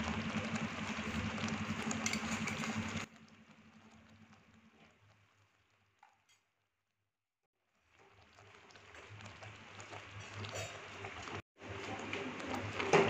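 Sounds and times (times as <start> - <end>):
milk simmering: 0.0 - 6.2, 7.6 - 13.0
spatula stirring: 0.6 - 3.1.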